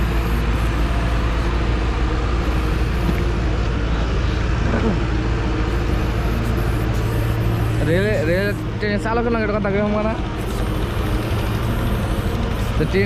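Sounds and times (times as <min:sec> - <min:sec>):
diesel train engine idling: 0:00.0 - 0:13.0.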